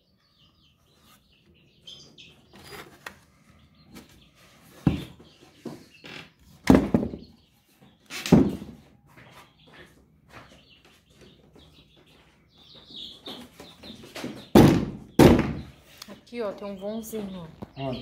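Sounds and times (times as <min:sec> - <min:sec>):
birds chirping: 0:00.0 - 0:18.0
knocks against wooden boards: 0:06.6 - 0:07.3, 0:08.2 - 0:08.8, 0:14.2 - 0:15.7
loud thumps: 0:06.6 - 0:07.3, 0:14.5 - 0:15.8.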